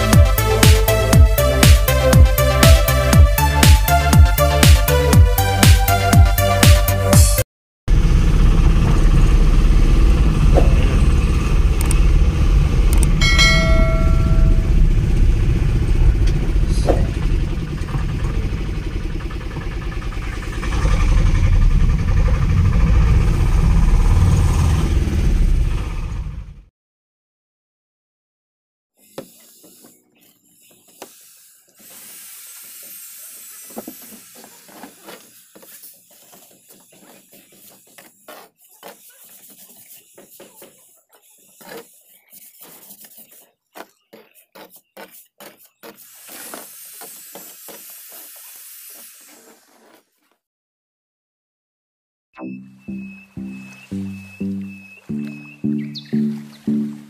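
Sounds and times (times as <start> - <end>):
van engine and road rumble: 0.0 - 26.7
bell-like chime: 13.2 - 14.9
steady hiss: 31.0 - 36.0
trowel scraping wet mortar: 33.6 - 50.3.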